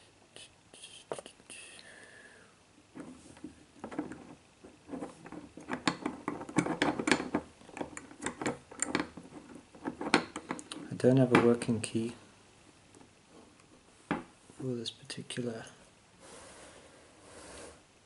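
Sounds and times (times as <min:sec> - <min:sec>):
padlock clicking and scraping: 0:03.0 - 0:11.6.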